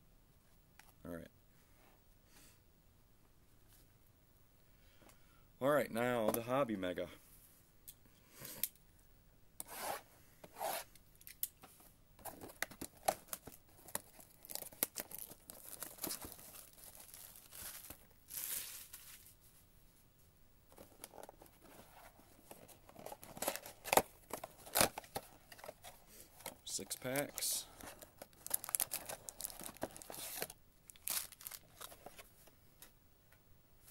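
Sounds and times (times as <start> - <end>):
shrink wrap crinkling: 12.3 - 19.4, 22.4 - 32.3.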